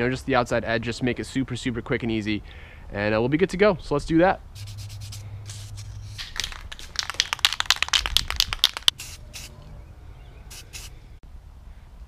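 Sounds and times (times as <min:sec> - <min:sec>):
spray paint hissing: 0:04.5 - 0:09.6, 0:10.5 - 0:10.9
spray can rattling: 0:04.6 - 0:09.5, 0:10.5 - 0:10.9.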